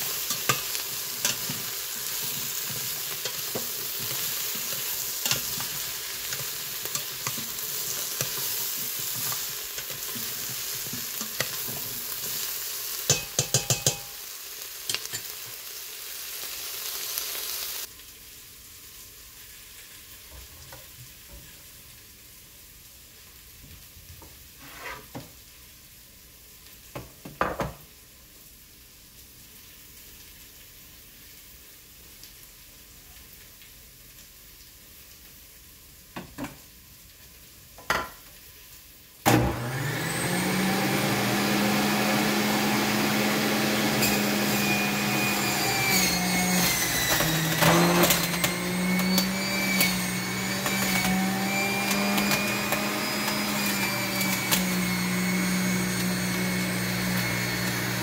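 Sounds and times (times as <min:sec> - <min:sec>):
juicer motor whining: 0:39.3 - 0:58.0
produce being shredded: 0:39.8 - 0:58.0.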